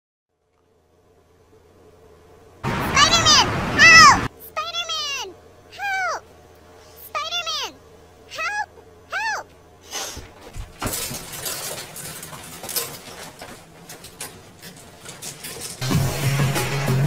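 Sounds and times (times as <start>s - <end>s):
wire hangers clinking: 10.7s - 16.0s.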